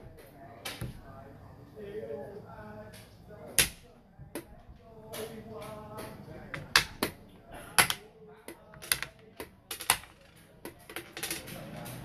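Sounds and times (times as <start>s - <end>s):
game pieces clacking on wooden board: 5.1s - 7.2s, 7.8s - 12.0s.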